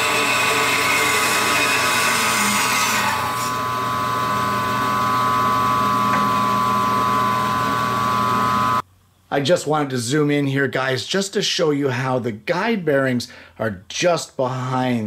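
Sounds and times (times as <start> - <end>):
bandsaw cutting wood: 0.0 - 7.6
saw running with hum and whine: 0.0 - 8.8.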